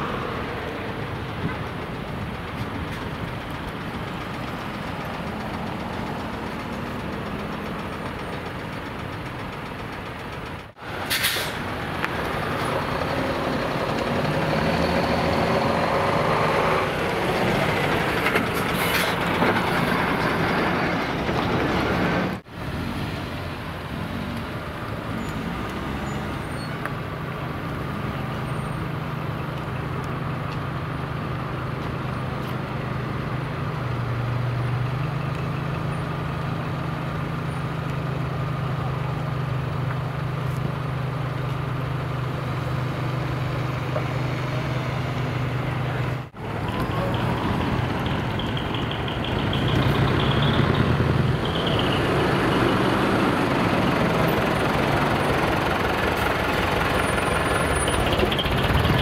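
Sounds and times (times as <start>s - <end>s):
diesel truck engines pulling away: 0.0s - 59.0s
air brake hisses: 11.0s - 11.7s.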